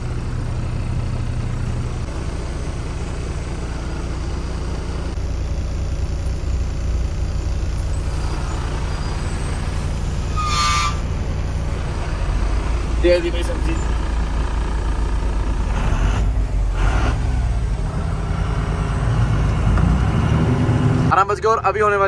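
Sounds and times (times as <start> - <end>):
diesel truck engine rumble: 0.0 - 22.0.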